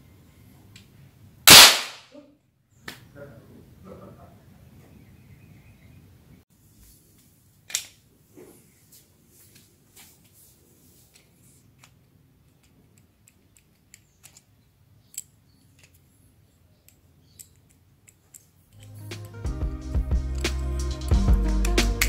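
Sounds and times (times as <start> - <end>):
plastic parts clicking: 11.2 - 16.2, 16.8 - 18.9.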